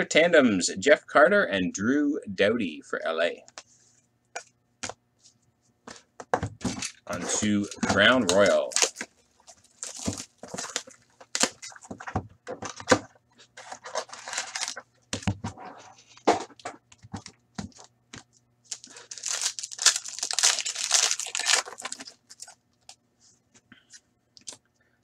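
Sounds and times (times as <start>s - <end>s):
wrappers being torn and crinkled: 7.2s - 11.8s, 13.8s - 14.9s, 18.7s - 23.0s.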